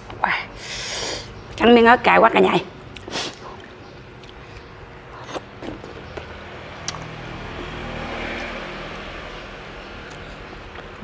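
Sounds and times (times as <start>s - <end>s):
quiet chewing with clicks: 2.9s - 7.1s
vehicle passing: 3.4s - 11.0s.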